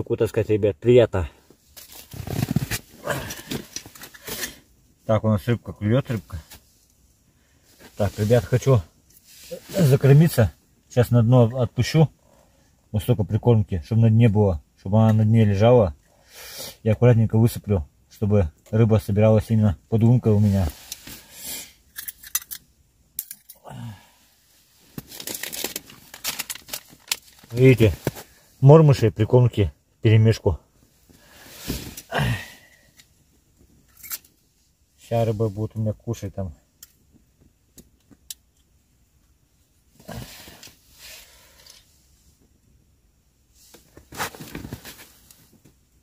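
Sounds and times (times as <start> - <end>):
rustling and crunching in snow: 1.8 - 3.5
fishing gear rattling: 25.0 - 27.6.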